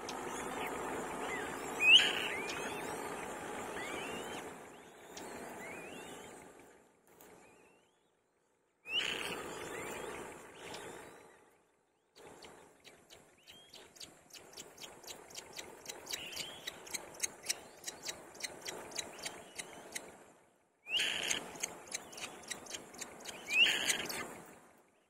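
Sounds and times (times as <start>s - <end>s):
nestlings clicking chirps: 13.1s - 20.0s, 21.0s - 24.2s.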